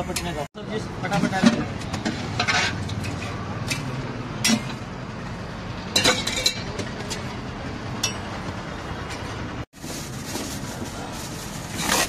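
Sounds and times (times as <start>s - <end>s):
metal utensils clinking on pots: 1.0s - 4.8s, 5.9s - 7.4s, 8.0s - 8.4s.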